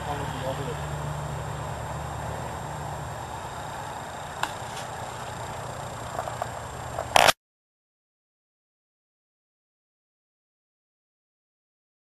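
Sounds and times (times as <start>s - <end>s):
truck engine idling: 0.0s - 7.2s
outdoor noise: 0.0s - 7.4s.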